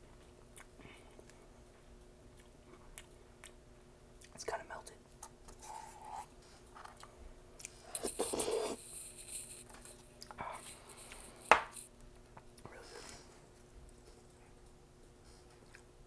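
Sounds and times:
plastic spoon scraping ice cream: 8.0s - 9.8s.

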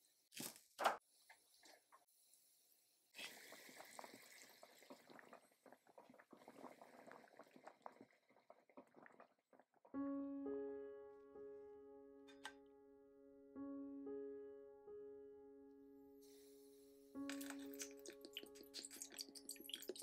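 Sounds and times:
broth simmering and bubbling: 1.2s - 10.0s, 17.2s - 20.0s
piano notes: 9.9s - 20.0s.

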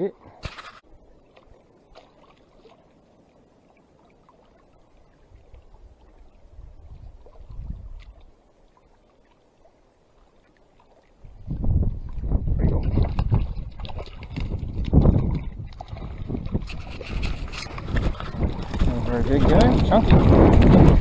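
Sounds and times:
ripples lapping against rocks: 0.4s - 21.0s
wind rumbling on microphone: 5.0s - 8.4s, 11.2s - 21.0s.

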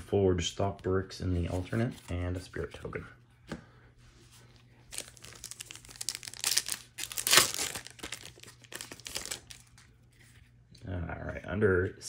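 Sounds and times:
foil wrapper crinkling and tearing: 4.9s - 9.9s.

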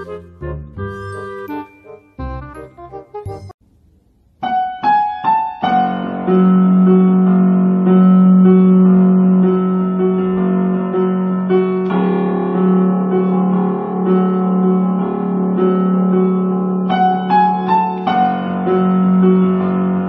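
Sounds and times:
electronic keyboard chords: 0.0s - 3.6s.

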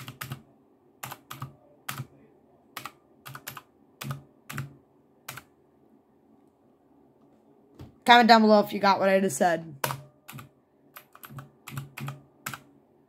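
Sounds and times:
mechanical keyboard clacks: 0.0s - 0.4s, 2.8s - 4.7s, 9.8s - 12.7s.

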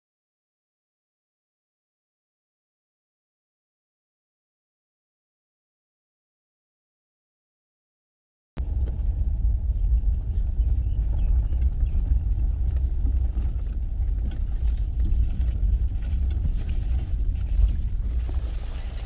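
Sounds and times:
vehicle rumbling on dirt track: 8.6s - 19.0s.

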